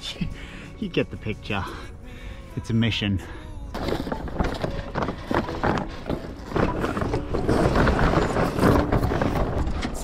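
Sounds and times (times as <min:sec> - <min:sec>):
background music: 0:00.0 - 0:10.0
sail cloth rustling: 0:03.8 - 0:10.0
sail slides clattering on mast: 0:03.8 - 0:10.0.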